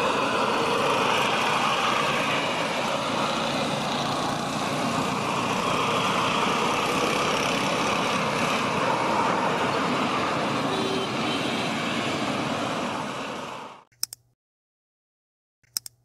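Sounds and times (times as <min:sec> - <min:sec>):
jet engine noise: 0:00.0 - 0:13.8
short clicks: 0:13.9 - 0:14.4, 0:15.6 - 0:16.0.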